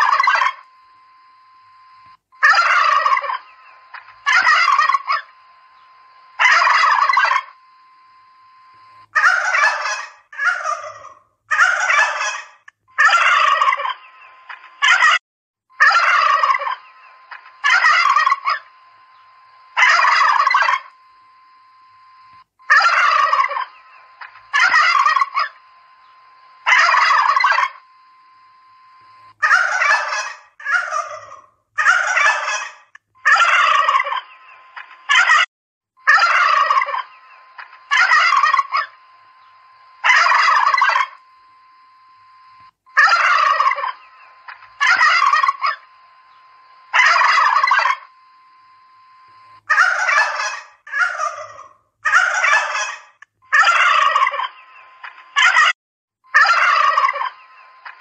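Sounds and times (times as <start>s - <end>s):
turkeys gobbling: 0.0s - 0.6s, 2.4s - 7.6s, 9.2s - 15.2s, 15.8s - 19.1s, 19.7s - 20.9s, 22.7s - 25.6s, 26.6s - 27.8s, 29.4s - 35.4s, 36.0s - 39.0s, 40.0s - 41.2s, 43.0s - 45.9s, 46.9s - 48.1s, 49.7s - 55.7s, 56.3s - 58.0s
faint steady tone: 0.0s - 10.9s, 15.7s - 30.6s, 36.0s - 50.8s.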